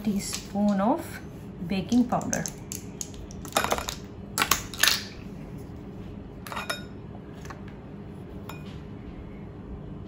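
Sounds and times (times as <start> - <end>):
utensils clinking on glass bowl: 6.4 - 7.0.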